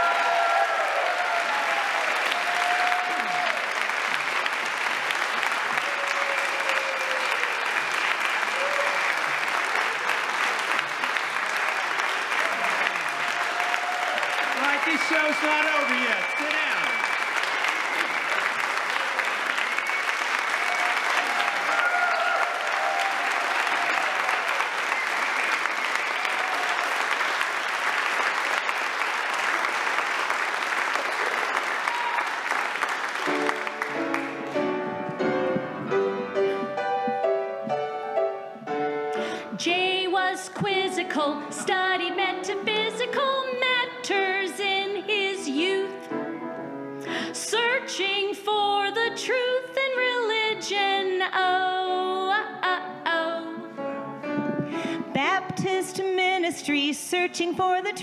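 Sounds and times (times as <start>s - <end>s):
audience applauding: 0.0s - 38.4s, 54.3s - 55.2s
piano playing: 32.9s - 48.0s, 51.7s - 56.2s
person singing: 39.1s - 46.2s.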